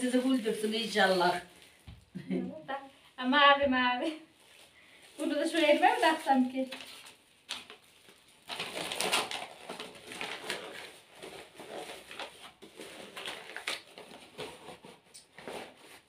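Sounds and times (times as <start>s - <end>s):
packaging rustling and crinkling: 4.4s - 16.0s.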